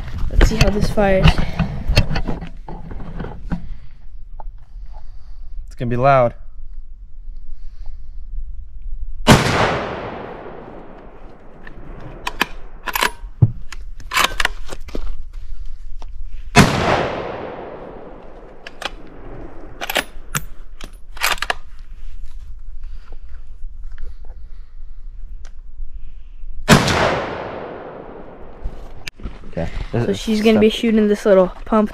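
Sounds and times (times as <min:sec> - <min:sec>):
rifle shots with echo: 0:09.2 - 0:13.0, 0:16.6 - 0:20.3, 0:26.7 - 0:28.6
rifle bolt clicks: 0:11.5 - 0:14.6.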